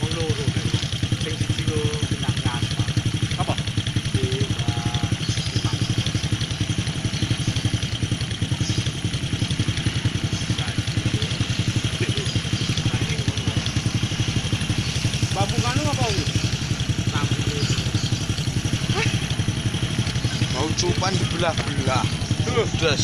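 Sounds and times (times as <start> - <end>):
motorcycle engine idling: 0.0 - 23.0.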